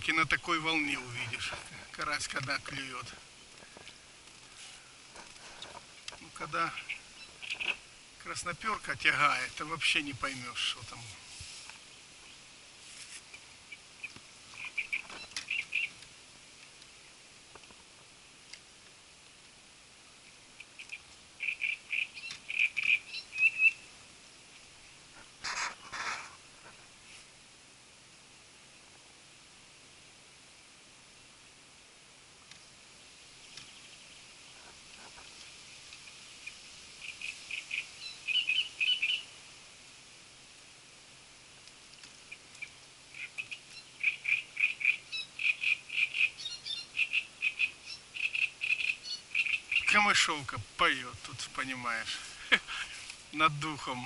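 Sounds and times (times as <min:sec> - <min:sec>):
rustling: 0:00.0 - 0:19.6, 0:24.5 - 0:27.4, 0:33.5 - 0:38.0, 0:49.8 - 0:54.0
warbler singing harsh chattering notes: 0:06.4 - 0:07.8, 0:13.7 - 0:16.0, 0:20.7 - 0:23.8, 0:42.3 - 0:52.1
bird chirping and trilling: 0:06.5 - 0:07.8, 0:13.7 - 0:16.0, 0:20.6 - 0:23.9, 0:37.0 - 0:39.3, 0:42.3 - 0:50.1.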